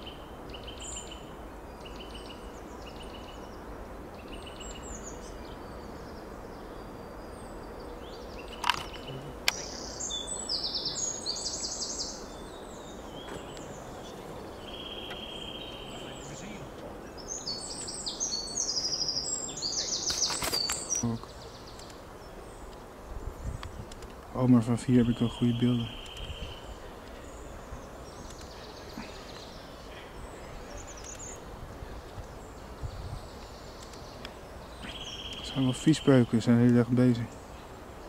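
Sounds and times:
small songbirds singing: 0.0 - 38.0
sharp clicks: 8.6 - 9.7, 21.7 - 22.0, 26.0 - 26.4, 28.2 - 28.6, 31.0 - 31.3, 33.4 - 34.4, 35.2 - 35.5.

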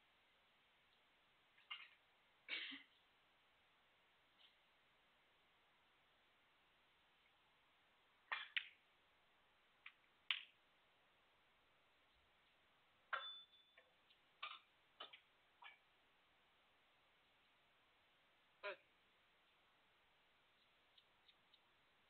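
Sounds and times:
snooker balls clicking: 8.3 - 8.8, 9.8 - 10.6.

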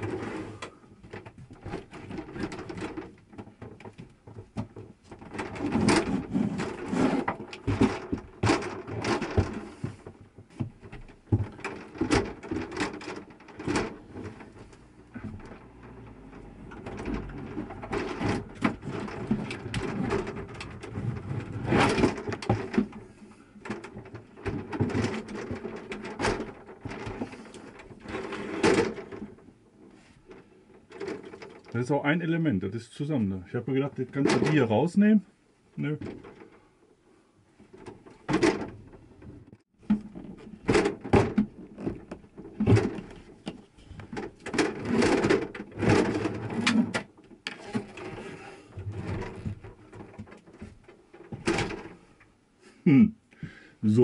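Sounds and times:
shower door panels rattling: 1.1 - 29.4, 37.7 - 39.0, 44.0 - 52.1.

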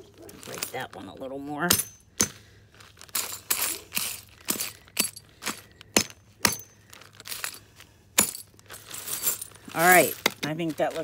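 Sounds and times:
hammer cracking glass in a bag: 1.6 - 2.4, 3.0 - 7.6, 8.2 - 11.0.

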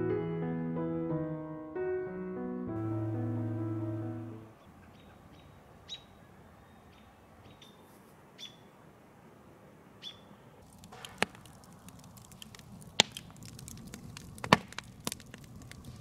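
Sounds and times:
bird chirping: 4.2 - 8.8, 10.0 - 10.4
campfire crackling and popping: 10.6 - 16.0.

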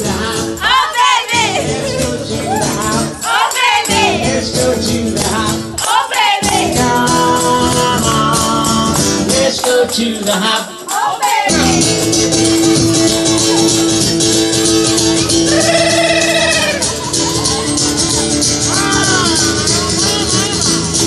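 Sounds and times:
people singing along: 0.0 - 13.7
acoustic guitar: 0.0 - 21.0
tambourines jingling: 0.0 - 21.0.

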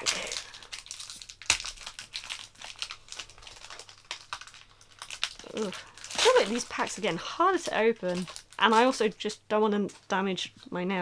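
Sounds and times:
sharp crack of foil: 0.0 - 7.0
foil wrapper crinkling: 0.0 - 9.4.

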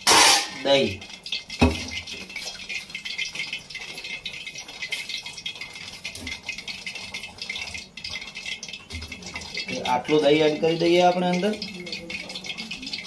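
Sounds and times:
spoon scraping steel container: 0.0 - 0.7.

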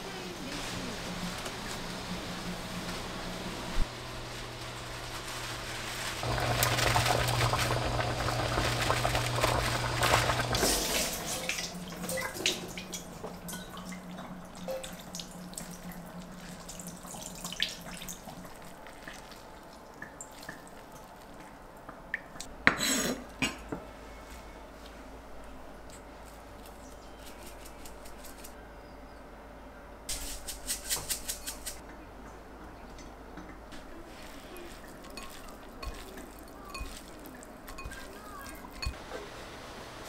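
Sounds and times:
rustle: 3.8 - 6.3, 33.7 - 39.4
kitchen tap running: 4.2 - 22.5, 34.3 - 39.0
water splashing: 5.6 - 21.5, 34.1 - 39.0
water dripping into a bowl: 11.5 - 22.5, 34.7 - 39.0.

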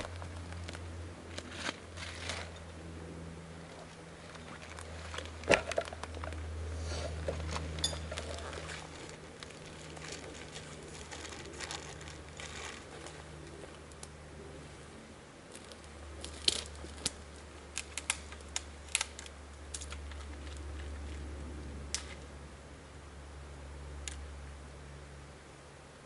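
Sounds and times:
low steady rumble: 0.0 - 26.0
dry twigs snapping: 15.5 - 21.3.

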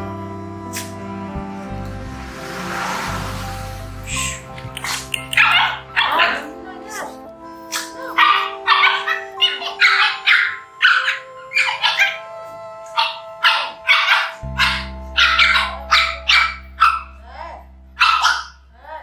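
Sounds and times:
background music: 0.0 - 19.0
puppies barking and yipping: 4.0 - 12.3, 12.9 - 17.2, 18.0 - 18.6.

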